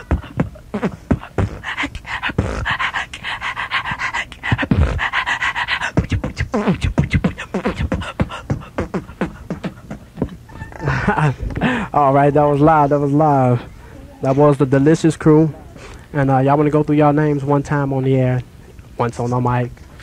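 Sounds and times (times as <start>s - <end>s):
person beatboxing: 0.0s - 10.5s.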